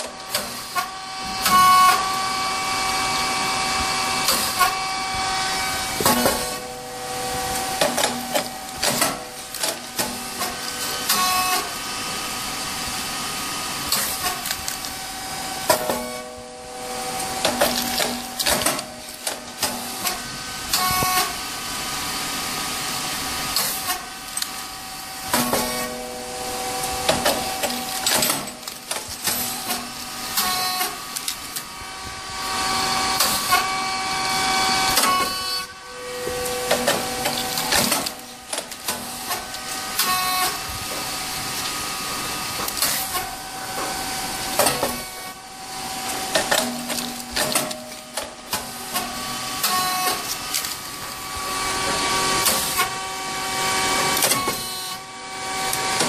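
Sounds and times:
steady high tones: 5.5 - 11.1, 25.6 - 28.5.

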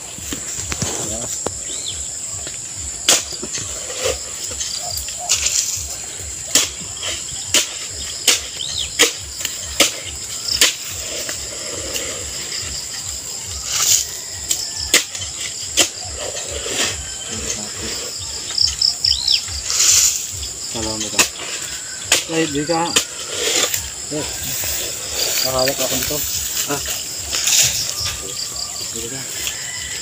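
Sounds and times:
crickets trilling: 0.0 - 30.0
digging tool chopping earth: 3.0 - 5.8, 6.4 - 11.4, 13.6 - 16.6, 19.6 - 24.0.

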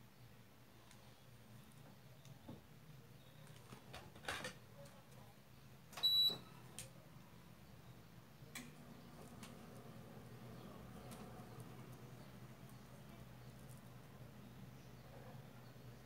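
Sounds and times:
beads clicking and rustling: 12.6 - 14.0.

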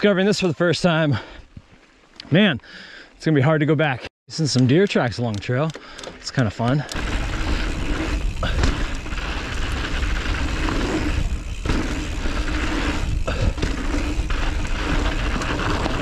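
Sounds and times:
bike tyre noise on dirt: 6.2 - 16.0
bike rattling over bumps: 6.6 - 16.0
wind rumble on microphone: 7.0 - 16.0.

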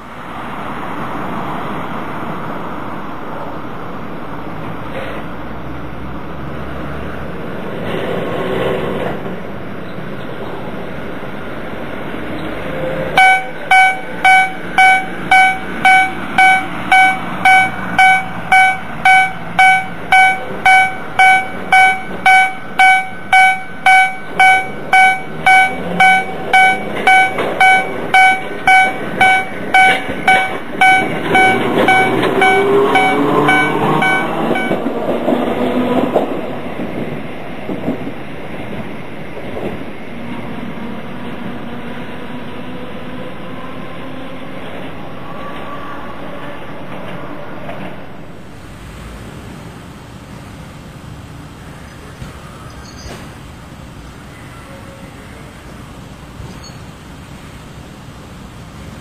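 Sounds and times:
tram running noise: 0.0 - 59.0
level crossing bell ringing: 13.2 - 34.9.

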